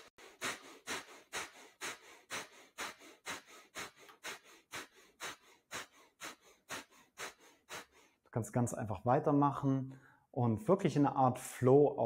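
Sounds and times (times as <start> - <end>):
forceful nose exhales: 0.0 - 8.1
soft inhales: 0.0 - 8.3, 9.9 - 10.3.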